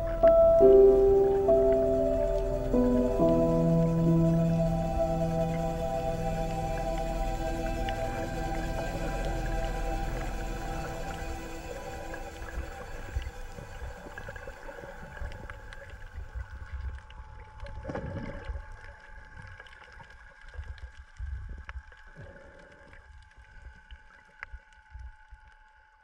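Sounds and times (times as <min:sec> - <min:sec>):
steady droning hum: 0:00.0 - 0:19.2
water surging and crackling underwater: 0:00.0 - 0:26.0.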